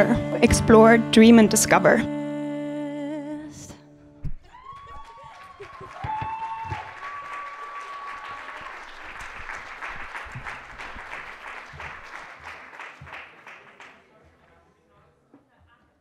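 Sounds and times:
crowd applauding: 4.5 - 14.6.

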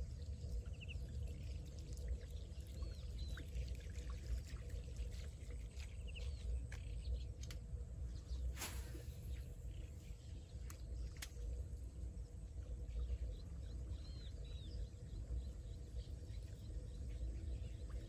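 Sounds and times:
fishing rod cast swish: 8.5 - 9.5.

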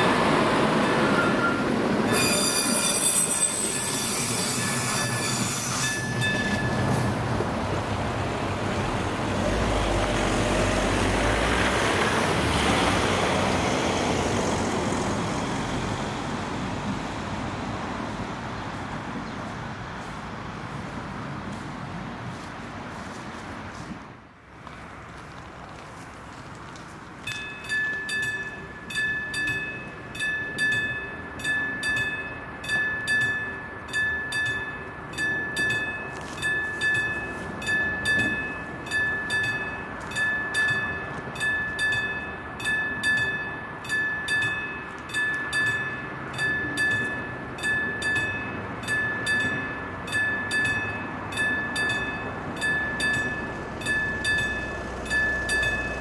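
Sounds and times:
level crossing bell ringing: 0.8 - 7.2, 27.3 - 56.0.

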